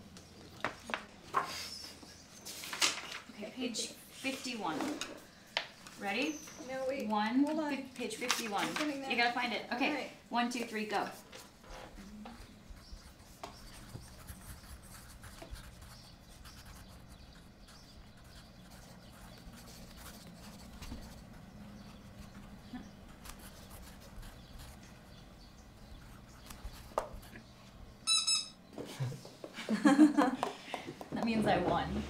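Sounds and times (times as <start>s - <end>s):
pencils scratching on paper: 3.7s - 9.7s, 10.5s - 27.6s.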